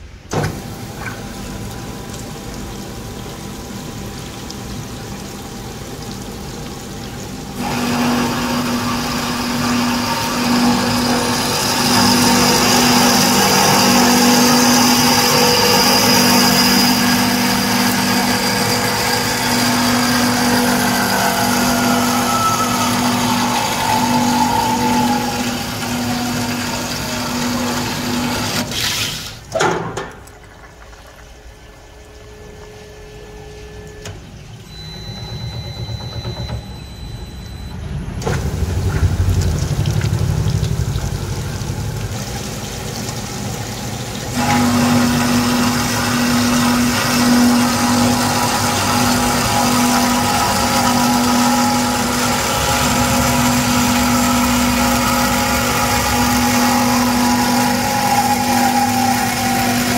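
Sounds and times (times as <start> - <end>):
bandsaw humming: 7.6 - 28.7, 44.3 - 59.9
falling whine: 7.6 - 28.7, 34.7 - 59.9.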